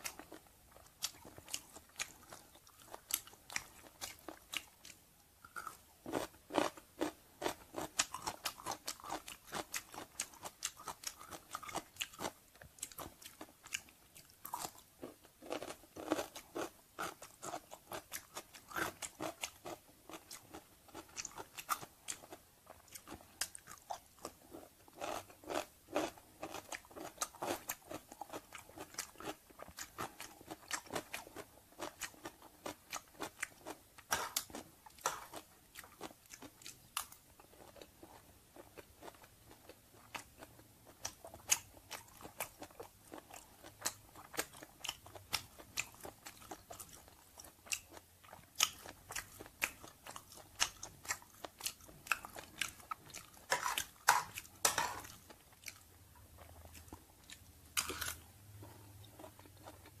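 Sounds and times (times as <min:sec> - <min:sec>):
person chewing food: 0:00.0 - 1:00.0.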